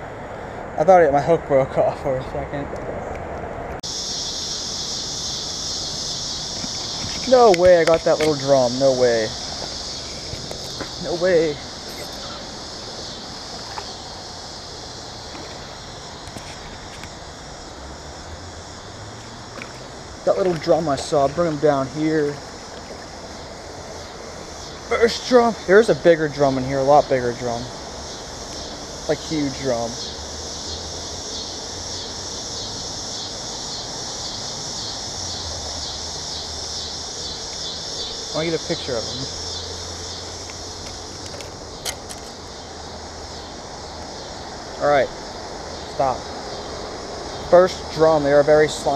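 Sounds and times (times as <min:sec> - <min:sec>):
wind: 0:00.0 - 0:48.9
high insect buzz: 0:03.8 - 0:48.9
flowing creek water: 0:03.9 - 0:33.0.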